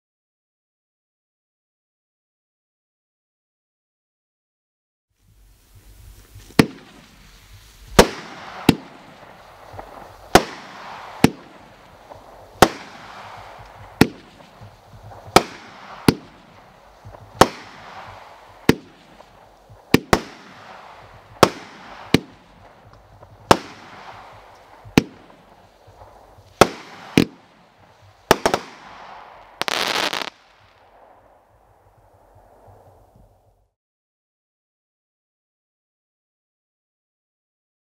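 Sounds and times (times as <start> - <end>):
firework bangs: 6.2 - 32.9.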